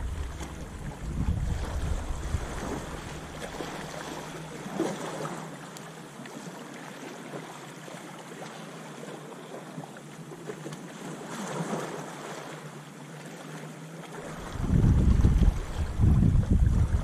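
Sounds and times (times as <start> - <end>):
wind rumbling on microphone: 0.0 - 4.4, 14.3 - 17.0
waves lapping over pebbles: 0.0 - 17.0.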